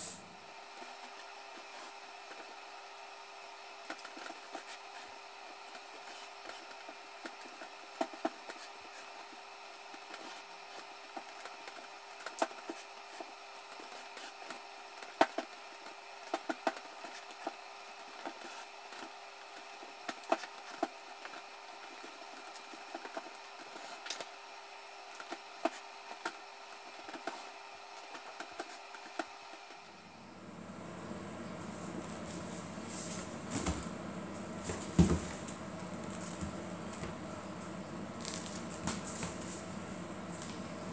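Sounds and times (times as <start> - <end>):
steady hum: 0.0 - 40.9
woven basket crackling and creaking: 38.1 - 39.7.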